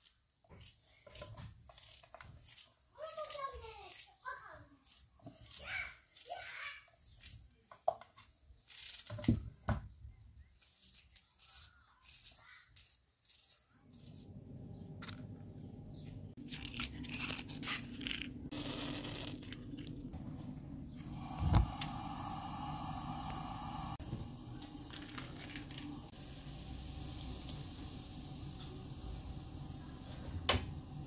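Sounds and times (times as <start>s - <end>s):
knife cutting onion: 0.0s - 7.5s, 10.5s - 14.6s
gas burner rushing: 18.5s - 31.0s.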